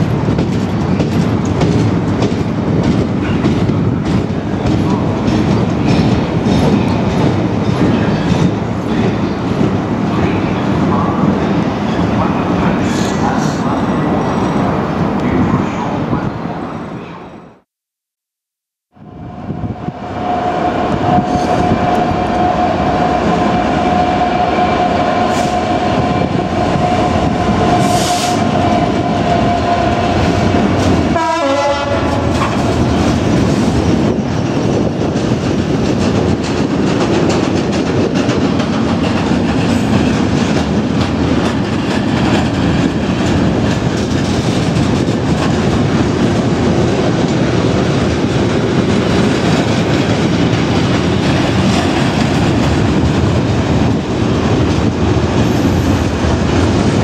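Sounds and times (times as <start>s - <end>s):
freight wagons clattering on rails: 0.0s - 9.7s
diesel locomotive passing: 19.0s - 57.0s.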